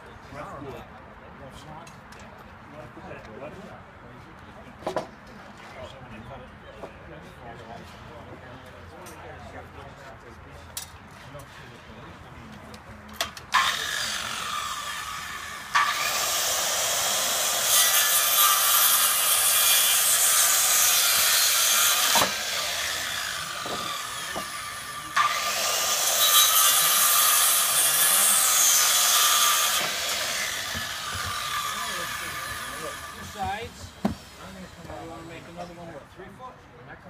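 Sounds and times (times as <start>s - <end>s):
circular saw cutting wood: 13.5s - 36.0s.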